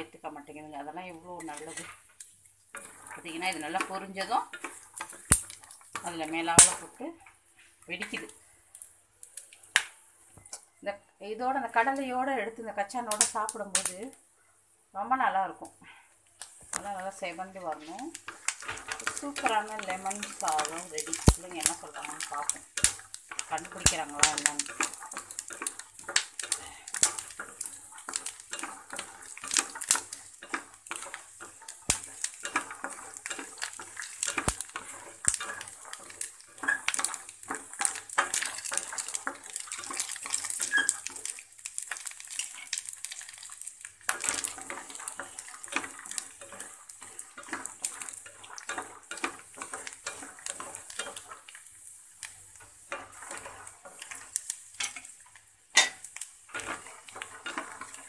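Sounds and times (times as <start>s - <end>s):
light sizzle: 0.0s - 58.0s
nuts rattling in pan: 0.4s - 7.0s, 16.5s - 58.0s
spatula scraping metal pan: 1.4s - 2.0s, 17.6s - 42.8s, 55.8s - 58.0s.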